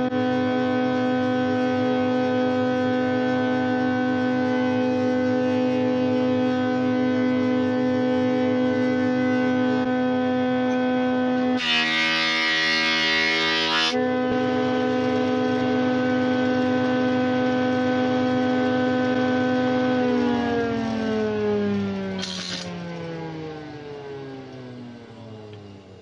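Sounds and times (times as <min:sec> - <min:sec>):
planer cutting wood: 0:00.0 - 0:24.7
thickness planer whine: 0:00.0 - 0:26.0.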